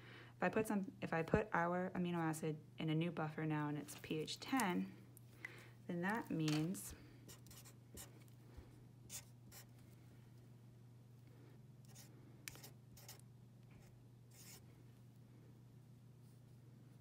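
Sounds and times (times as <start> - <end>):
low steady hum: 0.0 - 17.0
marker scratching on paper: 7.3 - 8.1, 9.1 - 9.7, 11.9 - 13.2, 13.8 - 14.6.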